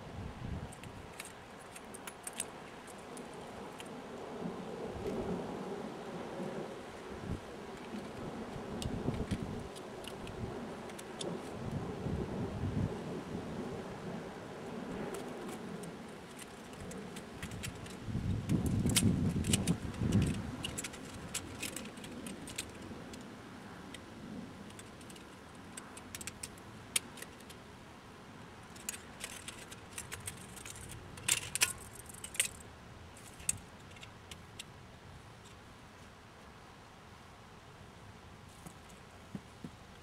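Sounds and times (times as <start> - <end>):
wind buffeting microphone: 0.0 - 1.1, 4.4 - 15.9, 16.8 - 22.8.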